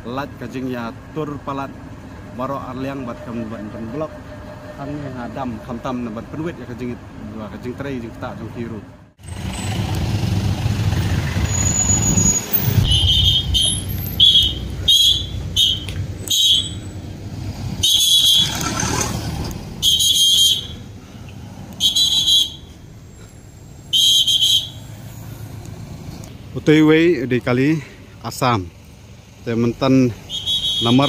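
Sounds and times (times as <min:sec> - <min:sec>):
car and truck engines rumbling: 0:00.0 - 0:31.0
police whistle blasts: 0:11.4 - 0:16.9, 0:17.8 - 0:18.6, 0:19.8 - 0:20.8, 0:21.8 - 0:22.8, 0:23.8 - 0:25.0, 0:30.2 - 0:31.0.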